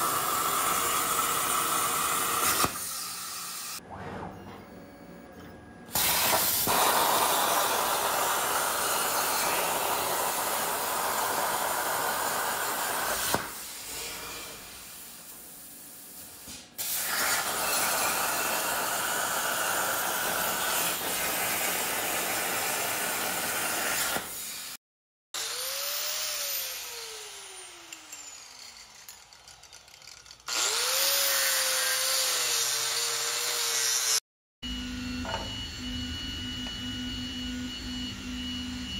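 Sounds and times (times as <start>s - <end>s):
plasma cutter arc hissing: 5.9s - 13.8s, 15.9s - 24.8s.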